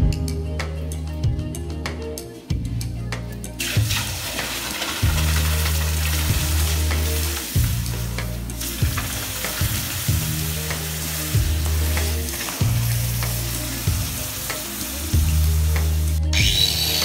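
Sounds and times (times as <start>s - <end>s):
hot metal sizzling in water: 3.6s - 17.0s.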